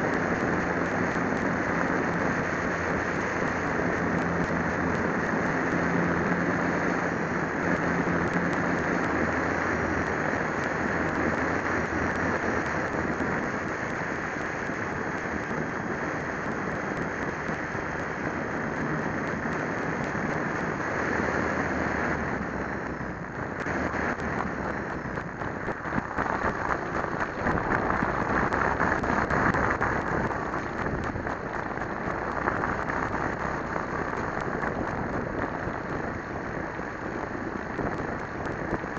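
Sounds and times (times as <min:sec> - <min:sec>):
model plane propeller: 0:00.0 - 0:38.9
wind rush: 0:00.0 - 0:38.9.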